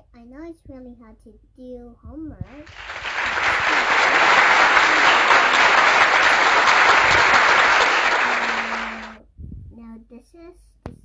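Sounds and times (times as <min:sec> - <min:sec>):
crowd applause: 0:02.6 - 0:09.2.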